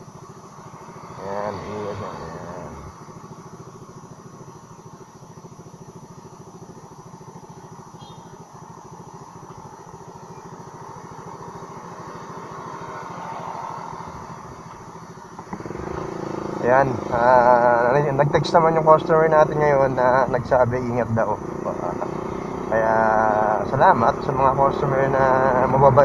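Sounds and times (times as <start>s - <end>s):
scooter engine idling: 0.0s - 26.0s.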